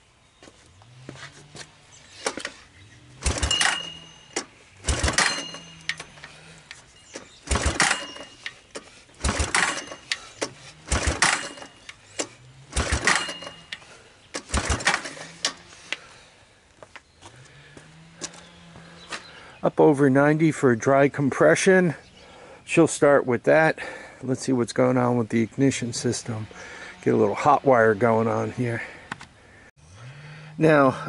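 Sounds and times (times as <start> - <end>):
engine cranking over: 2.1 - 16.0
recoil pull-starter yanked: 3.2 - 16.0.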